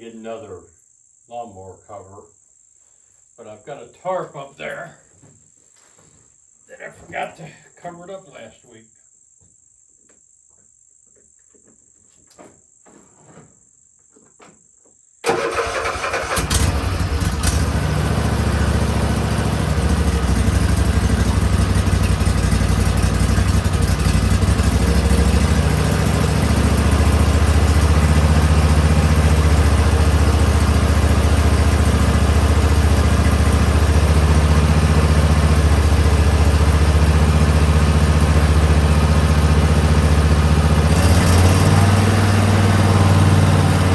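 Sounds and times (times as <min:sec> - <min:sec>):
lawn mower engine running: 0:15.2 - 0:43.9.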